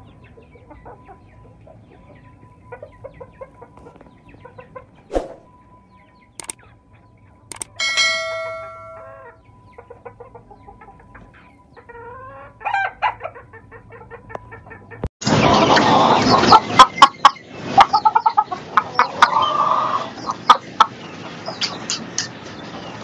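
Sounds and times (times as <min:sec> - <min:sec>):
noisy background: 0:01.2 - 0:09.7
sharp clicks: 0:06.4 - 0:06.6, 0:07.5 - 0:07.8
hen clucking: 0:08.1 - 0:22.1.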